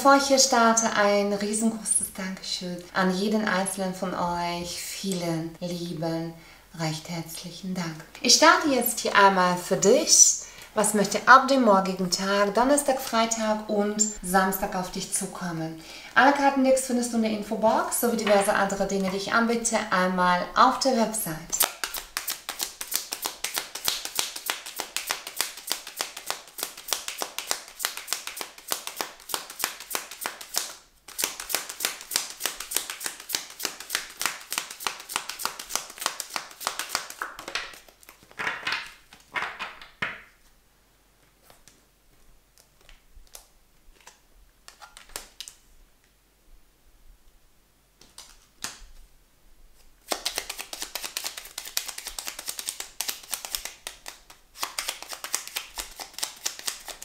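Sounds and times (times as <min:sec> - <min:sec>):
cards being shuffled: 0:21.5 - 0:40.2, 0:42.5 - 0:45.6, 0:48.0 - 0:49.0, 0:49.8 - 0:57.0
cards swishing: 0:21.6 - 0:38.4, 0:50.0 - 0:57.0.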